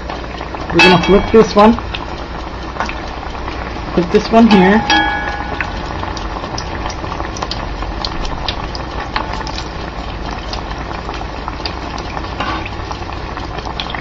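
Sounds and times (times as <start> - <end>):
deep-frying sizzle with pops: 0.0 - 14.0.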